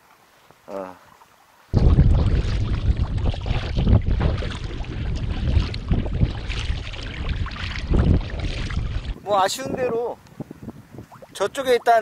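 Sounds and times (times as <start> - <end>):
water splashing against kayak: 1.7 - 9.6
wind on microphone: 1.7 - 12.0.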